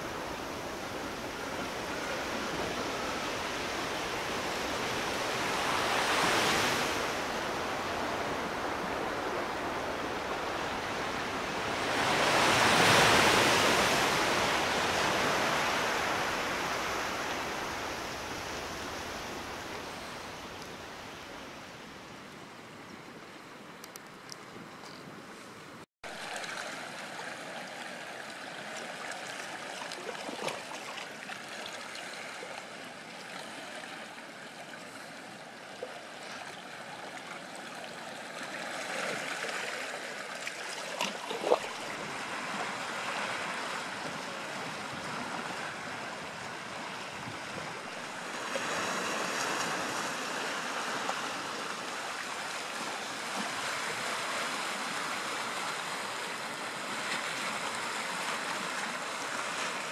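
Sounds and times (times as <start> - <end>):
waves lapping among rocks: 26.2 - 34.0, 34.6 - 46.0.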